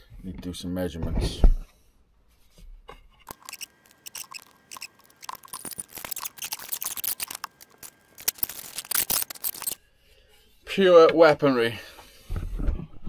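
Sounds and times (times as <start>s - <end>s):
small tools clicking and rattling: 3.3s - 9.8s.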